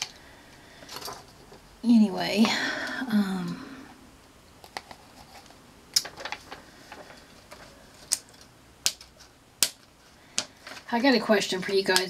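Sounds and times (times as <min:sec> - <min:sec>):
paper crackly clicks: 0:04.6 - 0:10.9.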